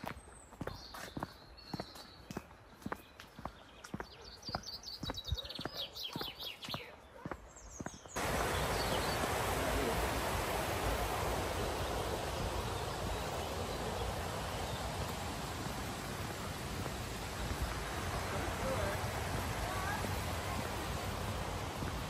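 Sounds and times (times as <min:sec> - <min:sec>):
footsteps on a path: 0:00.0 - 0:08.2, 0:11.8 - 0:22.0
birds singing: 0:00.0 - 0:22.0
stream rushing: 0:08.2 - 0:22.0.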